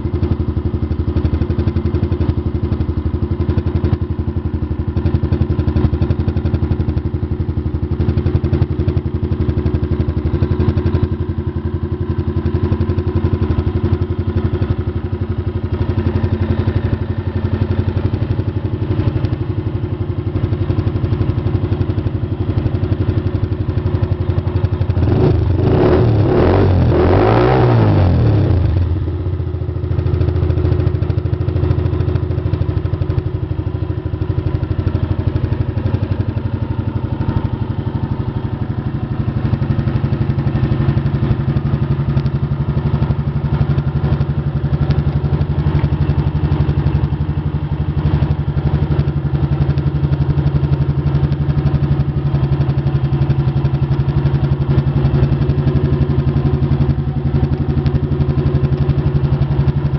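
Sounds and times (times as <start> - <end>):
motorcycle engine idling and revving: 0.0 - 59.9.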